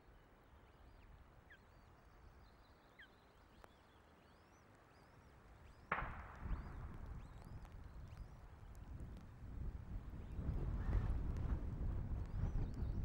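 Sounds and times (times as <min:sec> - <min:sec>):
wind buffeting microphone: 0:06.0 - 0:13.0.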